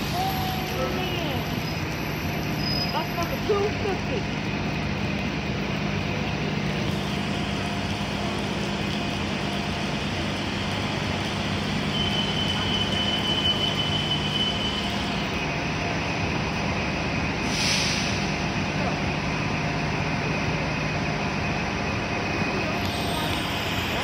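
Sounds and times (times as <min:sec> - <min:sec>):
bus engine hum: 0:00.0 - 0:24.0
tyres on wet pavement: 0:00.0 - 0:24.0
short hiss: 0:17.4 - 0:18.4.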